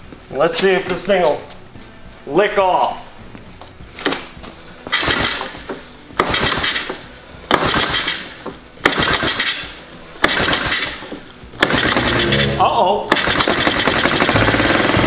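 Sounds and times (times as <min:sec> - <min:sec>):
engine cranking on pull starter: 0:10.3 - 0:11.0, 0:11.6 - 0:15.0.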